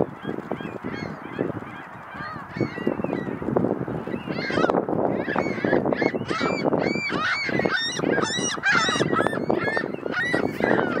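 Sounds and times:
flock of birds calling: 0:00.0 - 0:11.0.

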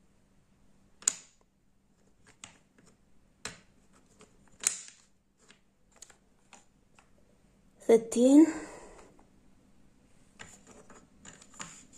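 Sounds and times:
wooden puzzle pieces clicking: 0:01.0 - 0:07.2, 0:10.4 - 0:11.9.

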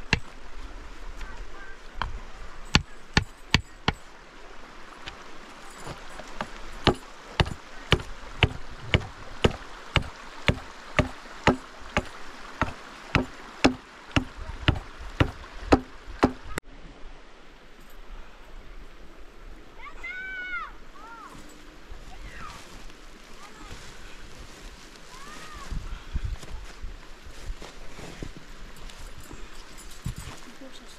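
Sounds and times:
hatchet striking wood: 0:02.0 - 0:04.0, 0:06.4 - 0:16.5.

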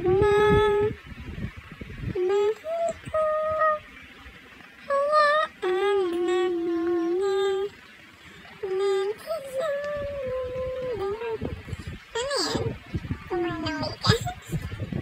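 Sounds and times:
person humming: 0:00.0 - 0:01.0, 0:02.2 - 0:03.8, 0:04.9 - 0:07.7, 0:08.6 - 0:11.6.

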